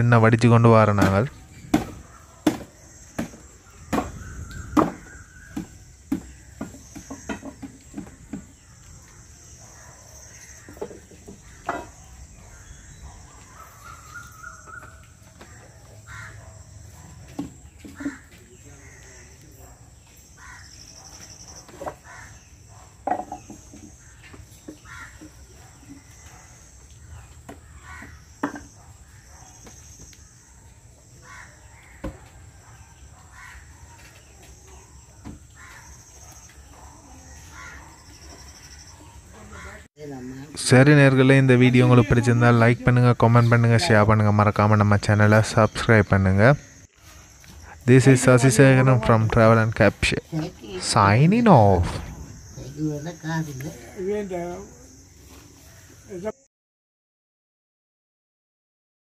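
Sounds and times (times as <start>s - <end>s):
birds calling: 0.0s - 56.4s
insects chirring: 0.0s - 56.5s
wooden knocks and clunks: 0.9s - 8.6s, 10.6s - 12.0s, 17.2s - 18.4s, 21.6s - 22.1s, 23.0s - 26.0s, 27.4s - 28.8s, 32.0s - 32.4s.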